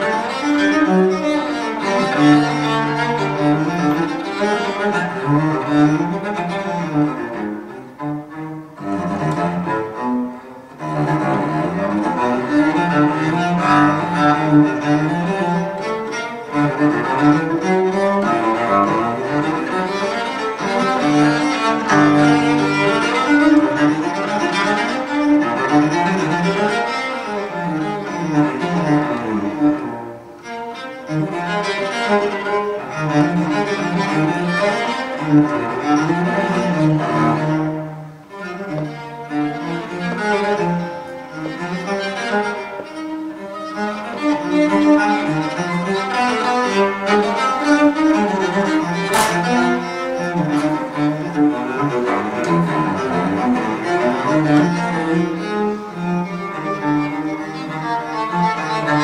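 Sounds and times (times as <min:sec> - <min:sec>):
bowed strings music on loudspeakers: 0:00.0 - 0:59.0.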